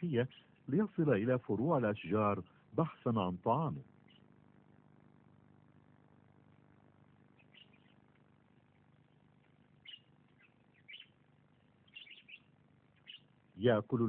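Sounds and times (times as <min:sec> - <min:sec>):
low steady hum: 0:00.0 - 0:14.0
faint high bird chirps: 0:04.0 - 0:04.4, 0:07.2 - 0:13.7.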